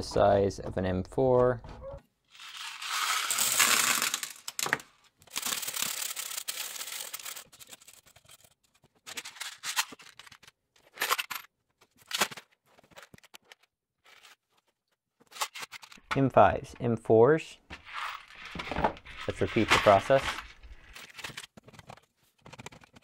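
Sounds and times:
screws rattling in plastic sieve: 0:02.3 - 0:11.3, 0:17.7 - 0:21.4
screws and plastic trays clattering: 0:02.4 - 0:12.4, 0:17.7 - 0:23.0.

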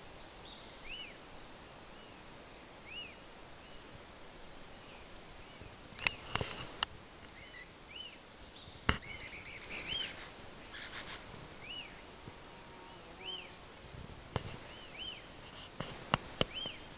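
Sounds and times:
high bird call notes: 0:09.0 - 0:12.1.

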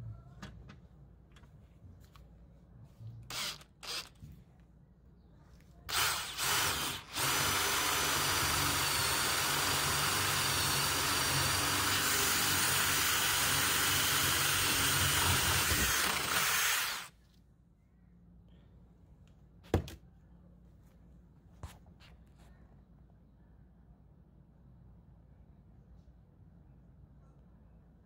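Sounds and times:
cordless drill boring wood: 0:03.3 - 0:04.1, 0:05.9 - 0:17.1.

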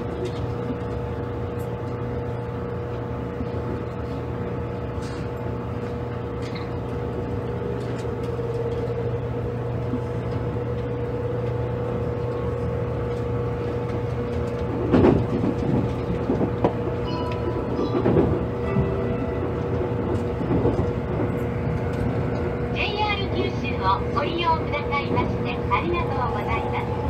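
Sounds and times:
electric train running hum: 0:00.0 - 0:27.0
wheel clatter over rail joints: 0:13.0 - 0:27.0.

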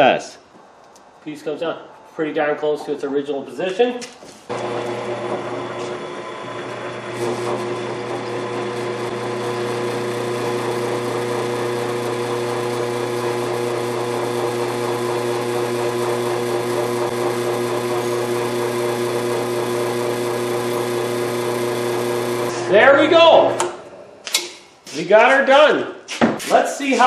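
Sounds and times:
drill press motor humming: 0:04.5 - 0:23.8.

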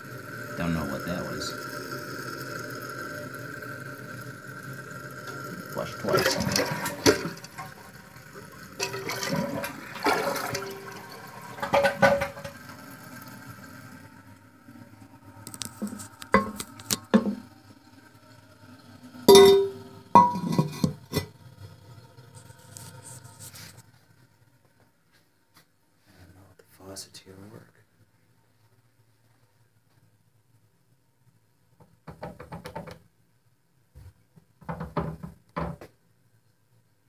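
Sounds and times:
water rushing in toilet tank: 0:00.0 - 0:23.8
porcelain lid knocks and clinks: 0:19.3 - 0:21.3.

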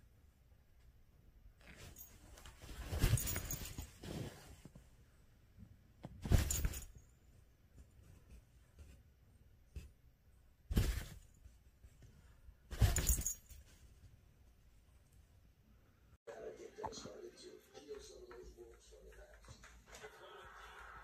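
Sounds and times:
fabric tunnel rustling: 0:01.6 - 0:04.8, 0:10.7 - 0:14.1.

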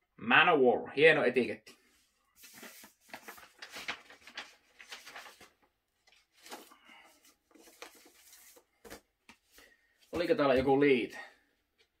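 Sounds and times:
record sleeve rustling and scraping: 0:06.1 - 0:09.6.

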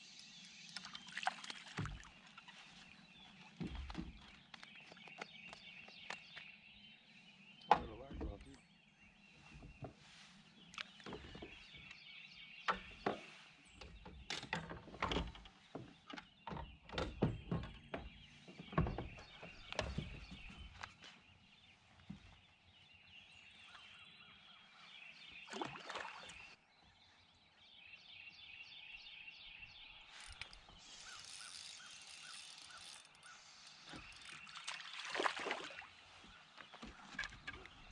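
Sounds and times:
birds calling: 0:00.0 - 0:37.9.

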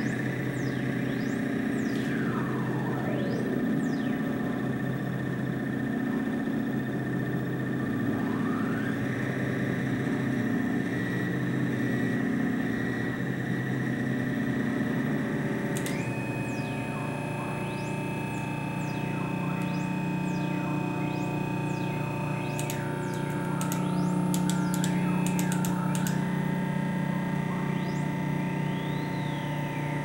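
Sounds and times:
synthesizer drone: 0:00.0 - 0:30.0
knob click: 0:22.5 - 0:26.2.

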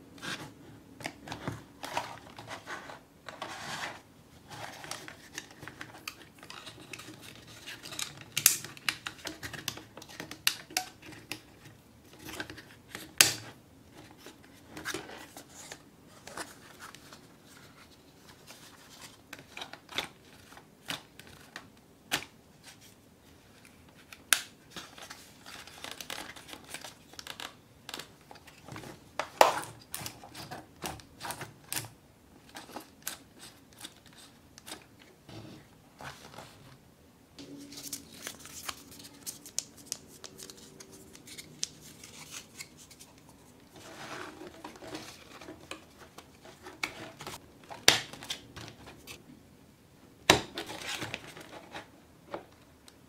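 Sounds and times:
card clicking and rustling: 0:37.5 - 0:49.2.

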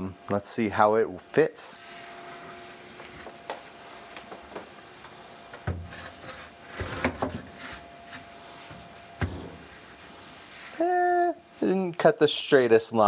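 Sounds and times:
board scraping against cabinet: 0:05.7 - 0:07.8.

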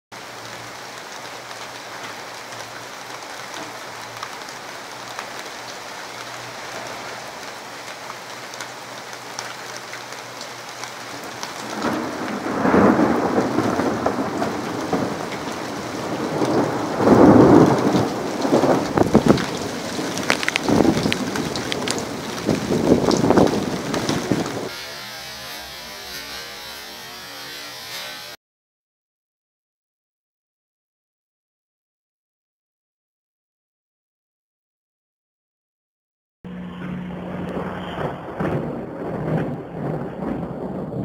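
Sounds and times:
rain falling: 0:00.1 - 0:28.4, 0:38.0 - 0:41.0
thunder rumbling: 0:11.1 - 0:27.5, 0:36.9 - 0:41.0.

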